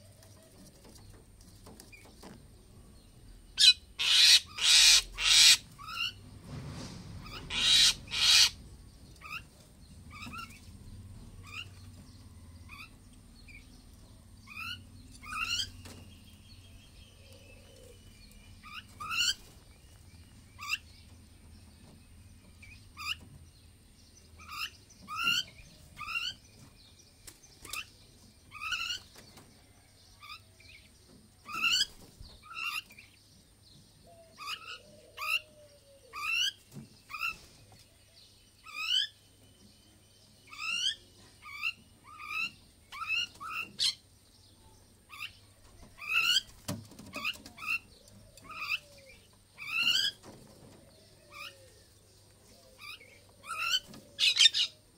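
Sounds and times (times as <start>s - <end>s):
myna bird chirping: 7.2s - 54.9s.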